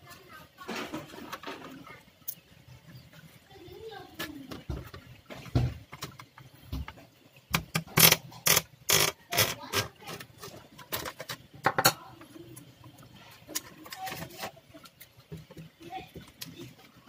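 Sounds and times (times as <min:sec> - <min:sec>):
plastic clicks and knocks: 0:04.5 - 0:12.0
scraping and rattling: 0:07.8 - 0:11.5.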